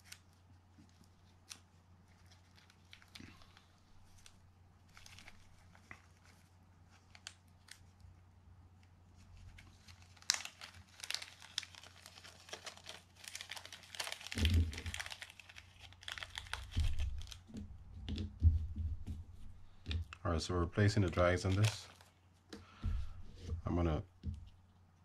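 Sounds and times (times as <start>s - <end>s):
plastic bag crinkling: 0.0s - 8.0s, 9.3s - 17.7s, 20.7s - 22.2s.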